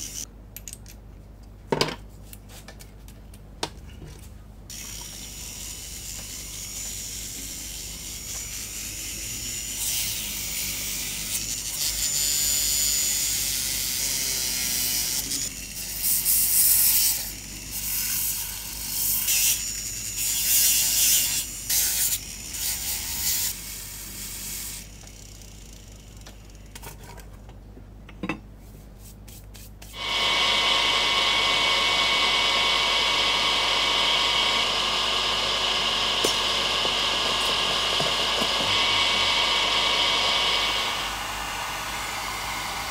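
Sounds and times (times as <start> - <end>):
rotary tool whining: 30.0 - 42.9.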